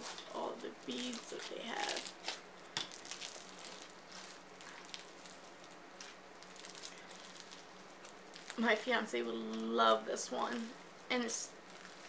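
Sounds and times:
slime squishing: 0.0s - 8.8s, 11.6s - 12.0s
bead slime crackling: 0.0s - 12.0s.

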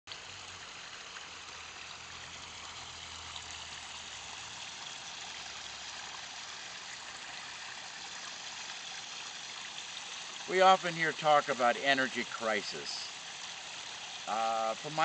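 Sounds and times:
water trickling down rocks: 0.1s - 15.0s.

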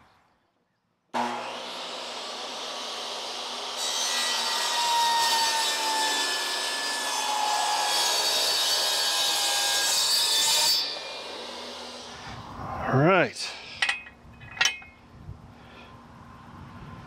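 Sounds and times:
table saw cutting board: 1.2s - 12.3s.

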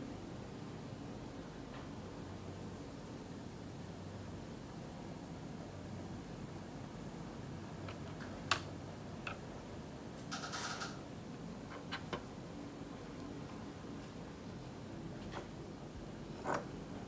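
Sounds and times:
steady low hum: 0.0s - 17.0s
small objects clicking on desk: 10.3s - 11.0s.

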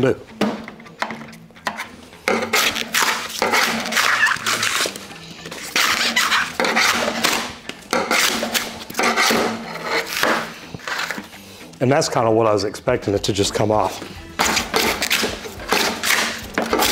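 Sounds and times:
foam insulation tearing: 2.5s - 5.0s, 5.6s - 7.5s.

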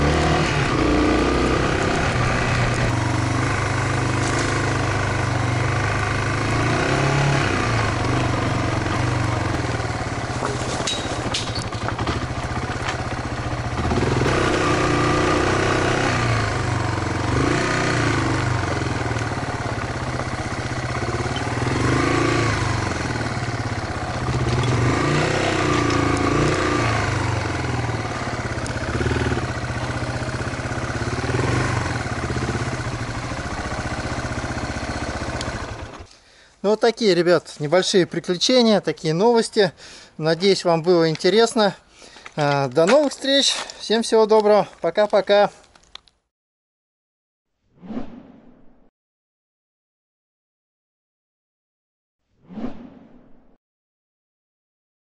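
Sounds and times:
motorcycle engine revving: 0.0s - 36.1s.

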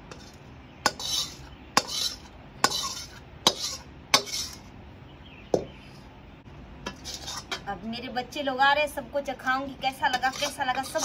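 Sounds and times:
spatula scraping a metal pan: 0.0s - 4.7s, 6.9s - 7.7s, 10.0s - 11.0s.

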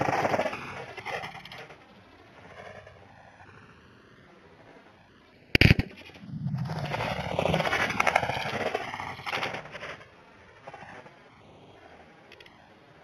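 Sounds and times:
rough rumbling noise: 0.0s - 3.6s, 5.5s - 11.3s
rifle shot: 5.6s - 6.3s.

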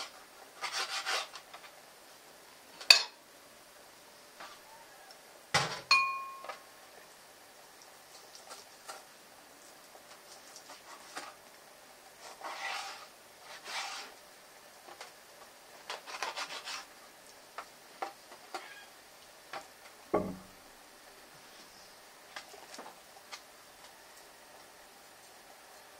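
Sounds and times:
knife scraping slicing strokes: 0.0s - 1.7s, 12.2s - 14.2s, 15.9s - 16.9s
knife knocking on board: 20.2s - 20.5s
knife tapping cutting board: 20.2s - 20.5s.

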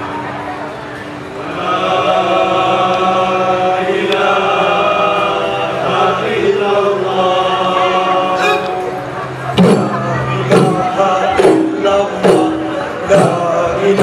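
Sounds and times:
group chanting held notes: 1.4s - 9.2s.

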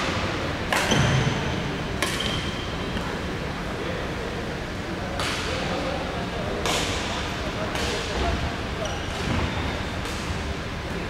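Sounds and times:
rackets hitting shuttlecock: 0.7s - 1.2s, 2.0s - 2.5s.

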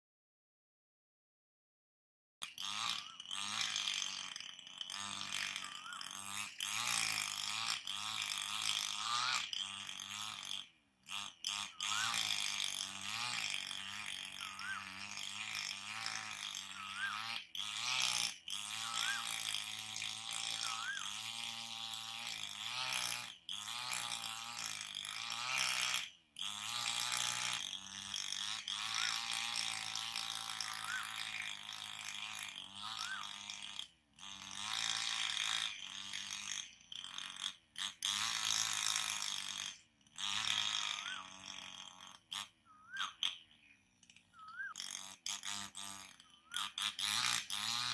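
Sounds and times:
high insect buzz: 11.5s - 23.1s
bird call rising and falling: 14.4s - 14.8s, 20.6s - 21.2s, 30.7s - 31.2s, 32.9s - 33.4s, 42.6s - 44.8s.

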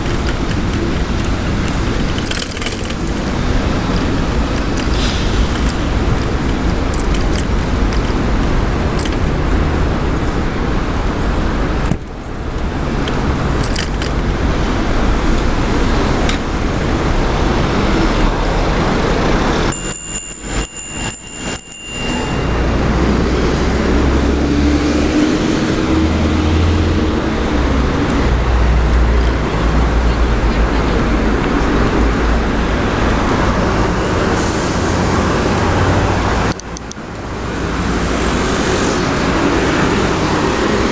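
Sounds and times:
car traffic passing: 0.0s - 40.9s
bike chain lock rattling: 2.0s - 3.3s, 13.0s - 14.3s, 19.7s - 22.9s
thin high tone: 19.7s - 23.5s.

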